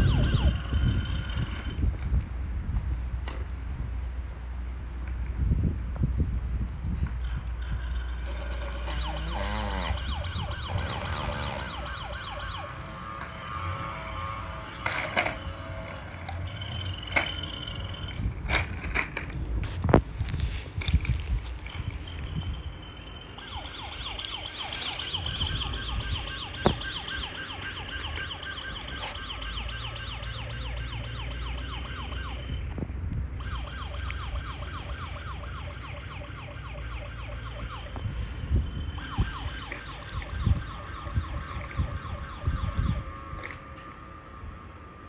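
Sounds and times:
toy electronic siren warbling: 0.0s - 1.8s, 7.2s - 18.3s, 21.7s - 32.7s, 33.4s - 45.0s.

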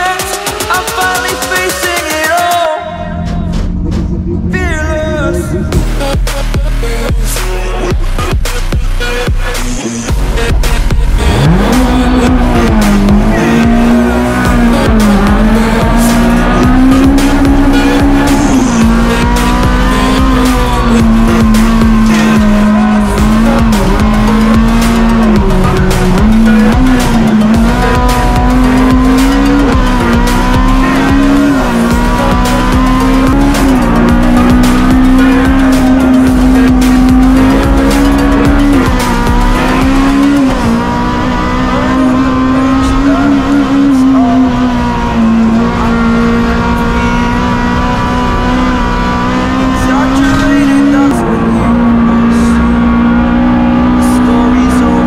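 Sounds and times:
race car engine at high revs: 0.0s - 55.0s.

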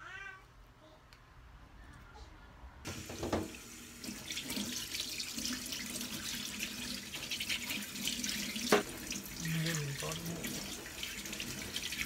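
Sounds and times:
tap running into steel sink: 8.6s - 9.1s.

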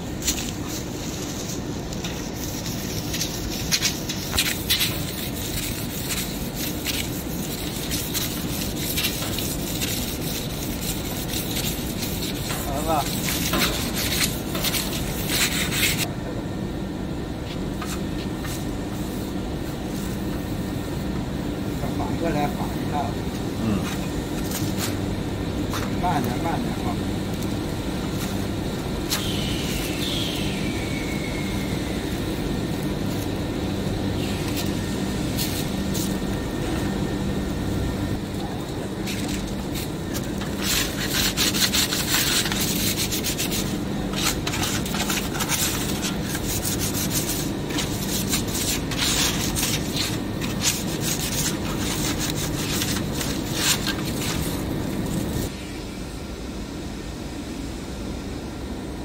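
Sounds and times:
low machine hum: 0.0s - 59.0s
cloth rubbing on metal: 0.2s - 16.1s, 39.0s - 55.5s.

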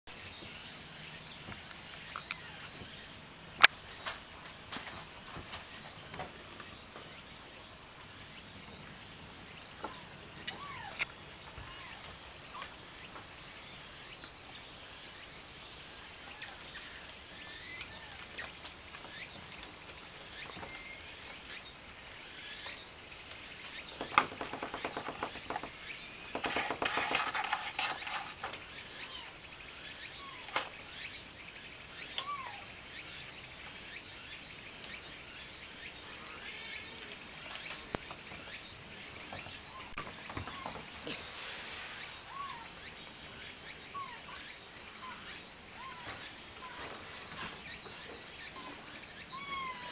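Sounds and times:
kitten high calls: 10.5s - 11.0s, 48.6s - 49.9s.

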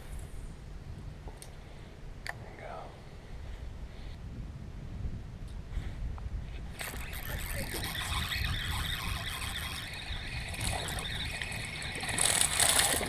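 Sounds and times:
wind rumble on microphone: 0.0s - 13.0s
fishing reel whirring and clicking: 6.7s - 13.0s.

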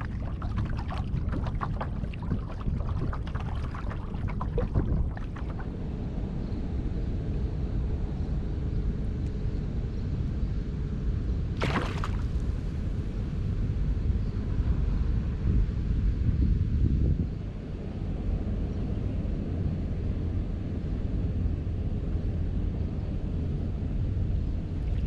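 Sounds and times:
fish splashing at water surface: 0.0s - 5.7s, 11.6s - 12.8s
wind rumble on microphone: 0.0s - 25.0s.

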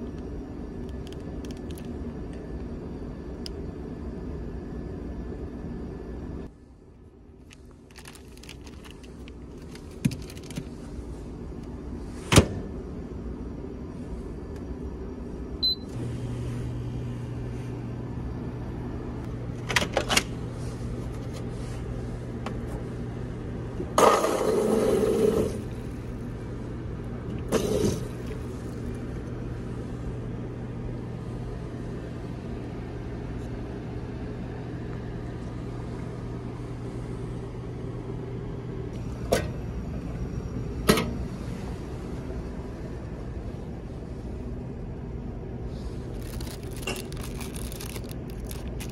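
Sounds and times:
microwave humming: 0.0s - 48.9s
short beep: 15.6s - 16.0s.

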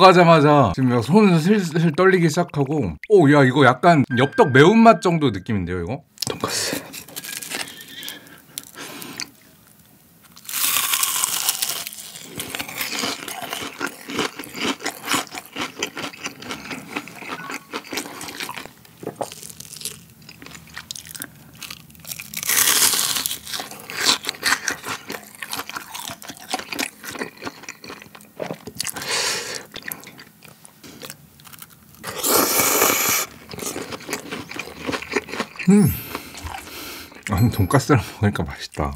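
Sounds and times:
crunching bites: 10.3s - 29.0s
wet chewing: 33.0s - 37.3s.

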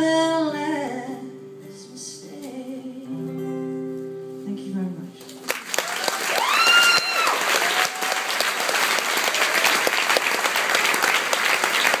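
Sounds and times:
audience applauding: 5.4s - 12.0s
high whooping cheer: 5.7s - 10.2s
faint shout: 6.0s - 8.4s.

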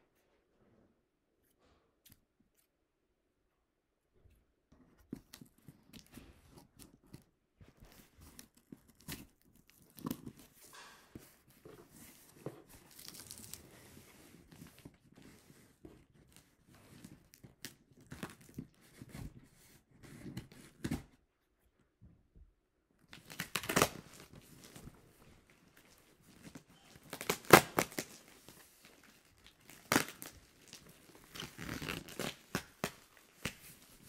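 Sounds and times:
packing tape tearing: 23.2s - 24.4s, 26.9s - 28.2s, 29.6s - 33.6s.

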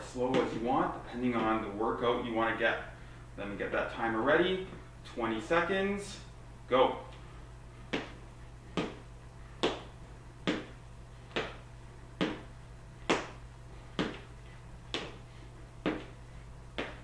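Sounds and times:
feet landing on wooden floor: 7.9s - 15.2s, 15.8s - 17.0s.

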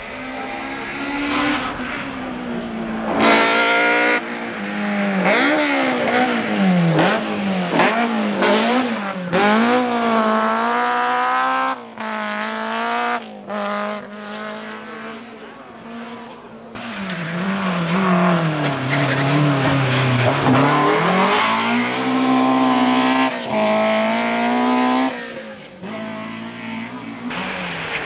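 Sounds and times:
rally car engine revving: 0.0s - 28.0s.

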